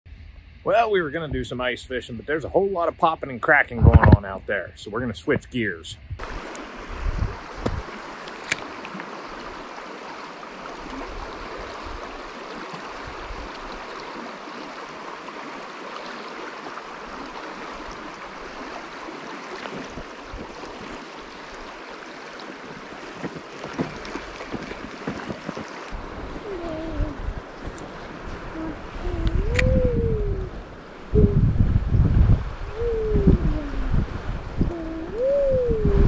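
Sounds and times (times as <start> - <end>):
creek water rushing over stones: 6.2 - 29.6.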